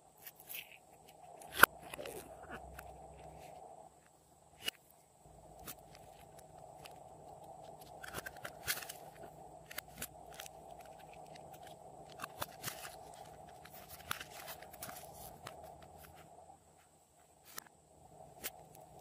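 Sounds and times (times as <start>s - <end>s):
faint background hiss: 0.0s - 19.0s
plastic containers crackling: 5.6s - 16.2s.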